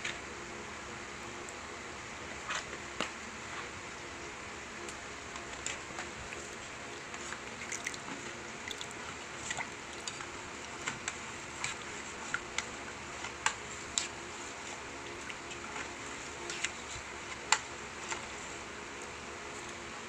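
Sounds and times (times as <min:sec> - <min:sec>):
spoon stirring thick mixture: 0:05.5 - 0:18.7.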